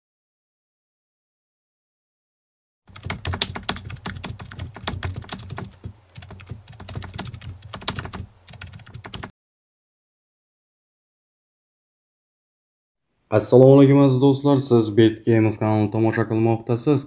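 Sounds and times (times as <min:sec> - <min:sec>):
keyboard typing clicks: 0:02.9 - 0:09.3.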